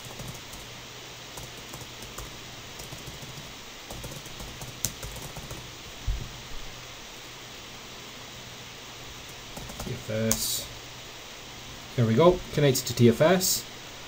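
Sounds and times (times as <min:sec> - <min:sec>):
typing on keyboard: 0:00.0 - 0:00.7, 0:01.4 - 0:05.6, 0:09.5 - 0:10.0
computer fan hiss: 0:00.0 - 0:14.0.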